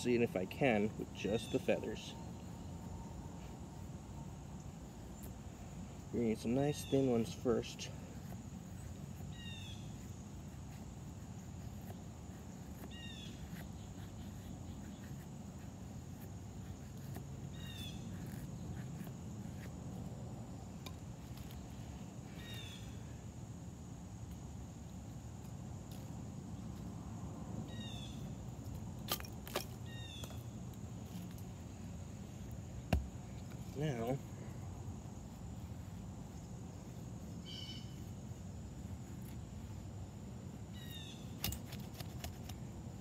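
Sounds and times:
high insect drone: 0.0s - 43.0s
outdoor hum: 0.0s - 43.0s
knife scraping wood: 6.3s - 20.1s, 41.2s - 42.7s.

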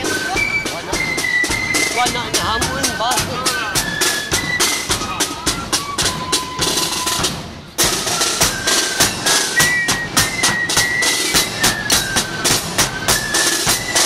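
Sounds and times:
bass drum: 0.0s - 5.2s
snare drums: 0.0s - 14.0s.

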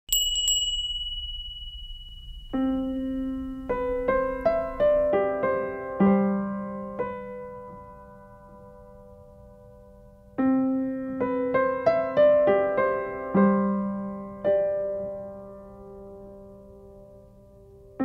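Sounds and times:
high ringing tone: 0.1s - 4.8s
slow gentle piano music: 2.3s - 18.0s.

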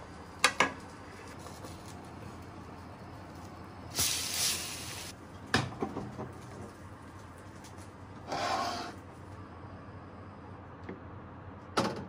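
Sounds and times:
metal baking tray sliding out: 8.3s - 9.0s
scraping rub: 8.3s - 9.0s.

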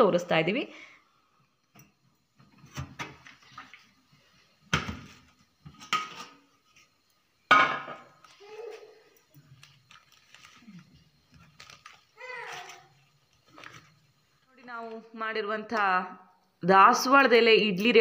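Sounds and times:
metal pot and lid clanking: 5.7s - 6.4s.

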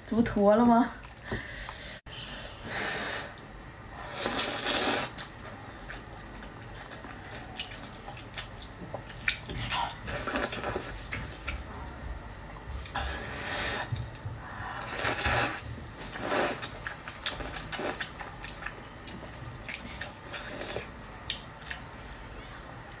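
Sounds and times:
noodles being slurped: 4.1s - 5.3s
wet chewing sounds: 4.2s - 12.0s, 13.8s - 22.3s.

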